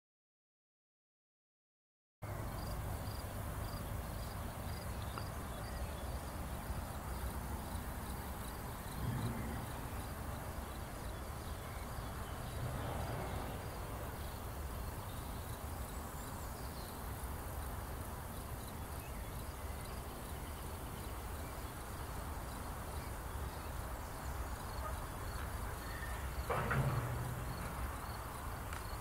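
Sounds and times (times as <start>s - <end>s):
faint high insect chirping: 2.3s - 29.0s
low rumble: 8.9s - 10.3s.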